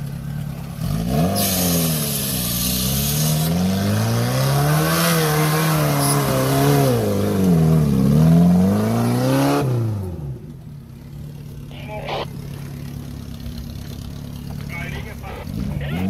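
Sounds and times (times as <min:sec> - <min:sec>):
off-road vehicle engine revving: 0:00.0 - 0:16.0.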